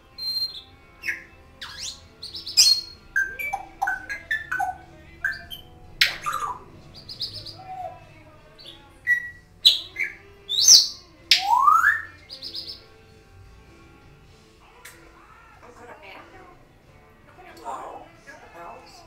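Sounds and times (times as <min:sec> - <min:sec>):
parrot whistling and chirping: 0:00.1 - 0:08.0, 0:08.6 - 0:12.9.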